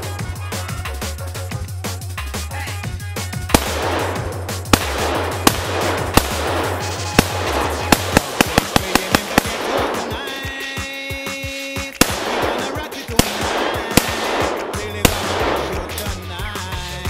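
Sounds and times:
gunshots with ringing echo: 3.5s - 11.0s, 12.0s - 16.4s
rapid sharp cracks: 3.5s - 16.7s.

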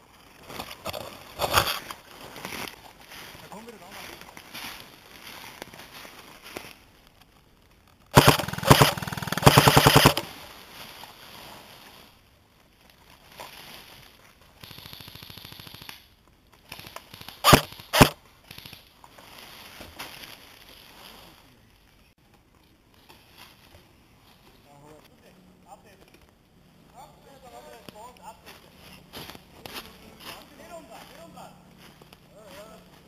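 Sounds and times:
airsoft gun firing bursts: 8.1s - 10.3s, 17.1s - 18.2s.

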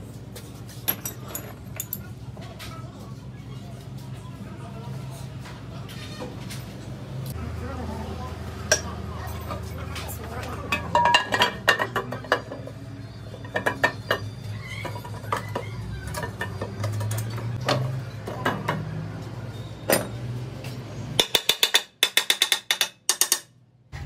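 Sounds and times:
metallic clinks and knocks: 0.8s - 2.1s.

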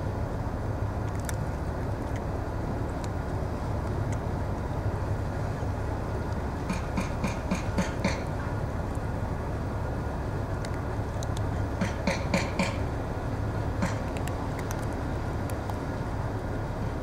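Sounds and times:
cats crunching dry food: 0.9s - 4.7s, 10.2s - 12.3s, 13.8s - 16.3s.

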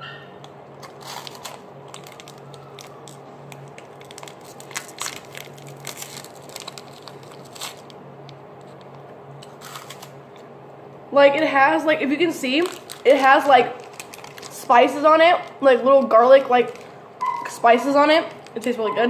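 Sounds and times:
steady low hum: 0.0s - 19.0s
crunchy snack being chewed: 0.8s - 7.9s
plastic wrappers crinkling: 0.8s - 8.0s, 8.6s - 10.2s, 12.2s - 18.9s.

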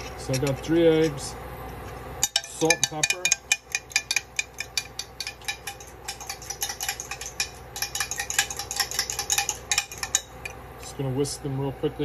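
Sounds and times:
fork clinking against bowl: 2.2s - 10.6s.

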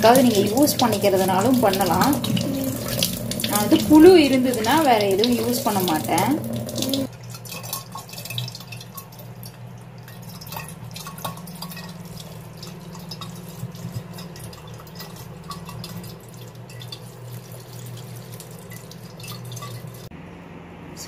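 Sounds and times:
steady low hum: 0.0s - 7.2s
tap water running over glass bottle: 0.0s - 20.1s
water splashing and dripping: 0.0s - 20.1s.

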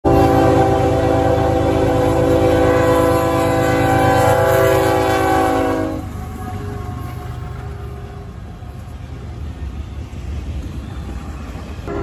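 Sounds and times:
locomotive air horn blast: 0.0s - 8.4s.

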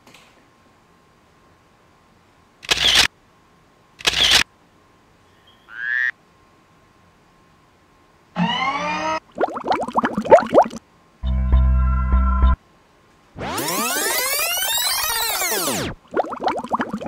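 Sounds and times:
pitched comic sound effect: 13.4s - 17.0s.

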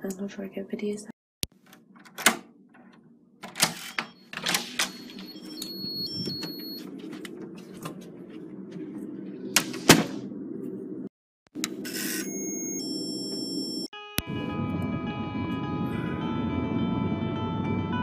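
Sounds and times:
door handle and latch clicking: 1.7s - 2.4s
high electronic beeps: 3.9s - 6.8s, 11.9s - 13.9s.

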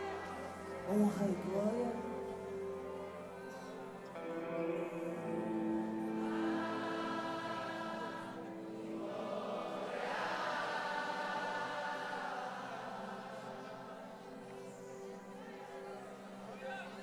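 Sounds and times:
congregation singing: 0.0s - 17.0s.

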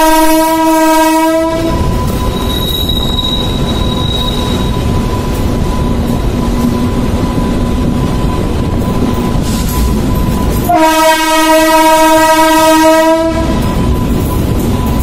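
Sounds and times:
train horn: 0.0s - 4.6s, 10.6s - 13.7s
train rumbling over bridge: 0.0s - 15.0s.

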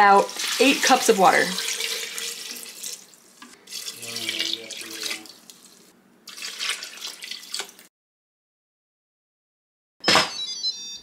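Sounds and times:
water pouring into metal pot: 0.2s - 7.9s.

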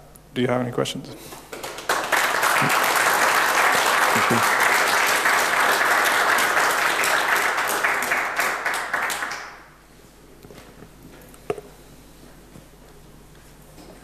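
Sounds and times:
audience applauding: 1.4s - 9.7s.

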